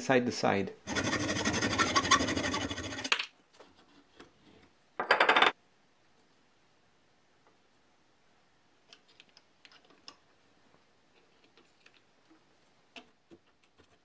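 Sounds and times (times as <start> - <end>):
hand file rasping on metal: 0.9 - 3.1.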